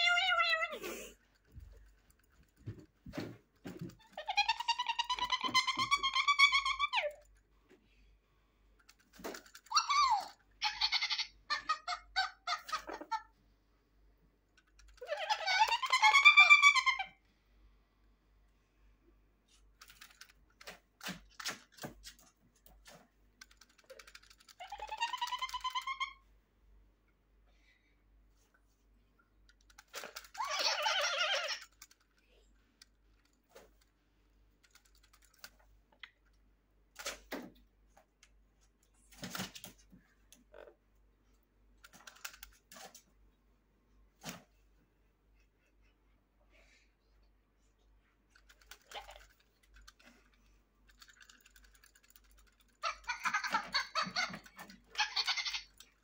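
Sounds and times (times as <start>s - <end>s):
parrot squawking: 9.7s - 13.2s, 52.9s - 55.8s.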